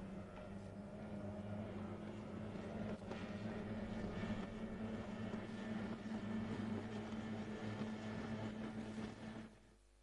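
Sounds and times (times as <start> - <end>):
outboard engine droning: 0.0 - 9.6.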